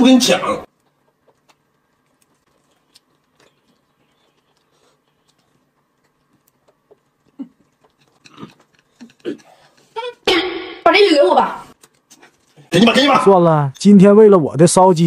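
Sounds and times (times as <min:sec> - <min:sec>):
person chewing noodles: 0:00.7 - 0:10.0.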